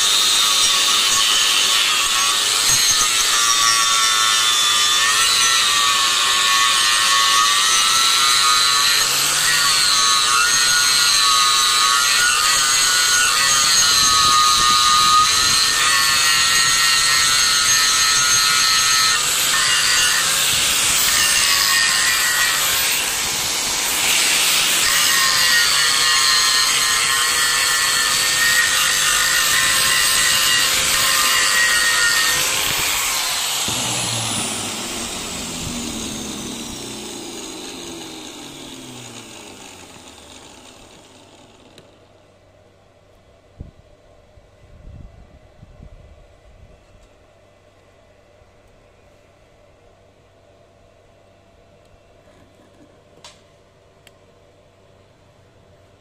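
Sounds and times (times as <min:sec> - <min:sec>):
angle grinder grinding steel: 0:00.0 - 0:42.1.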